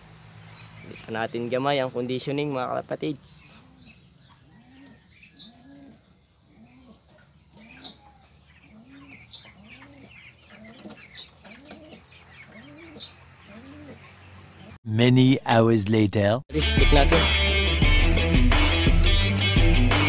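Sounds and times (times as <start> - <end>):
small birds chirping: 0.0 - 14.8
pigeons cooing: 2.2 - 14.8.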